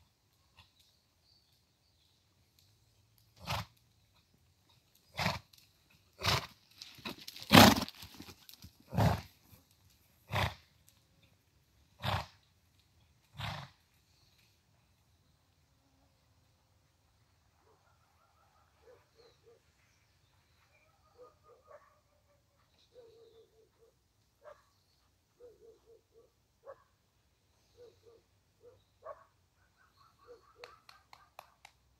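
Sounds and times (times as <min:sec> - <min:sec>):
horse snorting: 0:03.4 - 0:03.7, 0:05.1 - 0:05.5, 0:06.2 - 0:06.6, 0:07.4 - 0:07.9, 0:08.9 - 0:09.3, 0:10.2 - 0:10.7, 0:12.0 - 0:12.4, 0:13.3 - 0:13.8.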